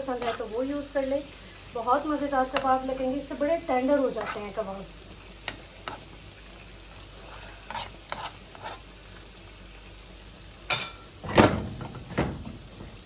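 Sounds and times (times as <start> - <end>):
food sizzling in a pan: 0.0 - 13.0
utensil knocking and scraping pan: 0.2 - 0.5.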